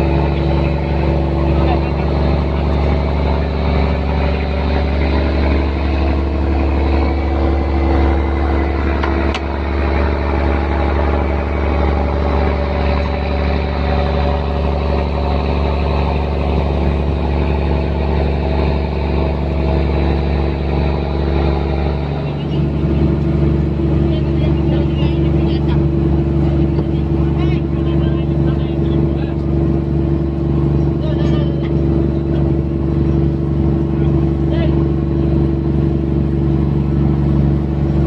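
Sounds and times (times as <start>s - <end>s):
boat engine running: 0.0s - 38.0s.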